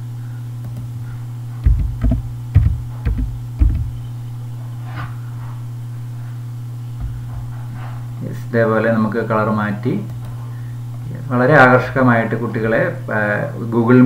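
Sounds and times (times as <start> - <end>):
low hum: 0.0 - 8.5
keyboard typing: 1.6 - 4.0.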